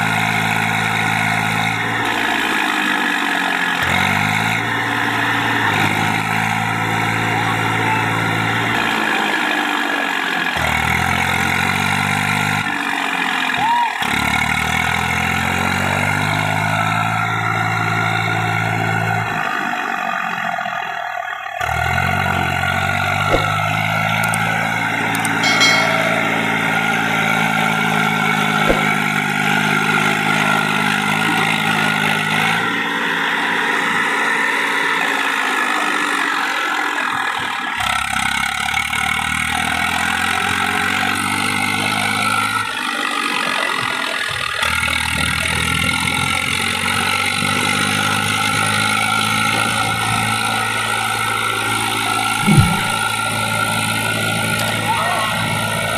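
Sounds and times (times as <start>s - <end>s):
tractor engine working under load: 43.9s - 55.9s.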